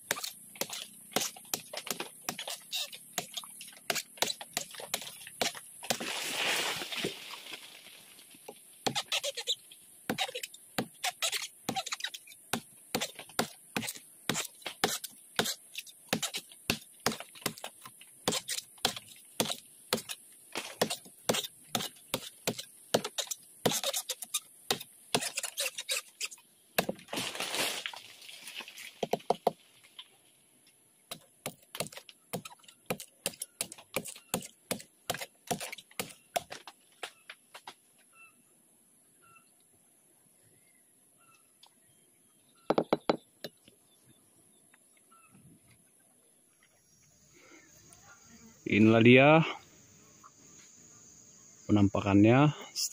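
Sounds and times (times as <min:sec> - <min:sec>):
rustling noise: 0:05.8 - 0:08.6, 0:27.0 - 0:29.0.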